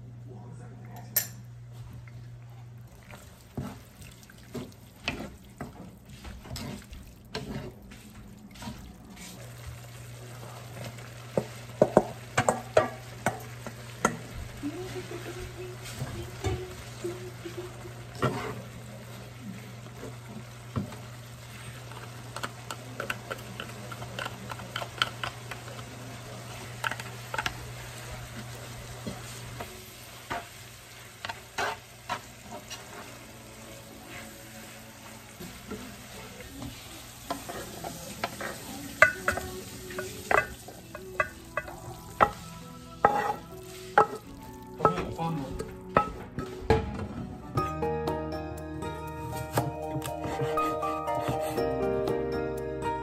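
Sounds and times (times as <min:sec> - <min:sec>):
spatula scraping and clicking on pan: 0:04.5 - 0:07.8, 0:31.2 - 0:33.1, 0:43.0 - 0:45.0
food sizzling in frying pan: 0:08.6 - 0:45.9.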